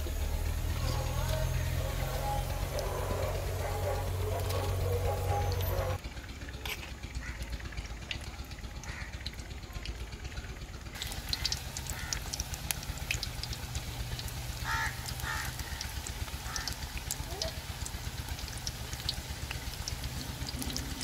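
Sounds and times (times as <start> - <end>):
batter sizzling in hot oil: 0.0 - 6.0, 10.9 - 21.0.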